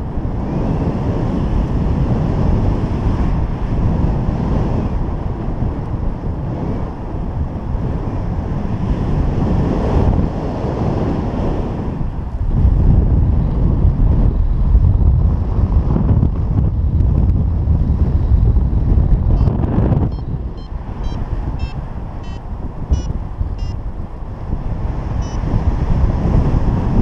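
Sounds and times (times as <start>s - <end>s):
wind buffeting microphone: 0.0s - 27.0s
variometer short high beeps: 19.3s - 23.8s, 25.2s - 25.5s.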